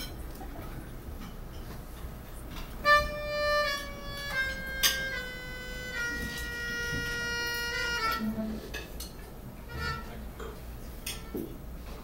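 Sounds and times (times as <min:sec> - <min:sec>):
melodica long held notes: 0:02.8 - 0:08.4, 0:09.6 - 0:10.3.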